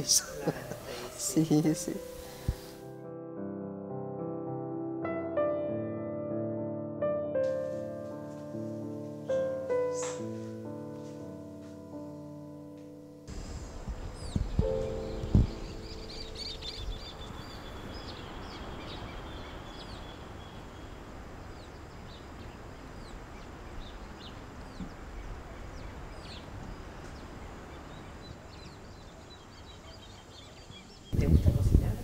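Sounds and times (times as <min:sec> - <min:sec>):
steady background hiss: 0:00.0 - 0:03.0, 0:07.5 - 0:32.0
small birds chirping: 0:09.3 - 0:10.3, 0:13.3 - 0:32.0.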